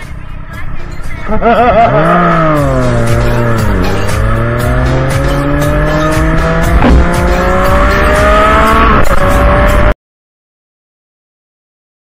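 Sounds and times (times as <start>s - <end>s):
background music: 0.0s - 10.0s
motorcycle engine accelerating: 1.3s - 10.0s.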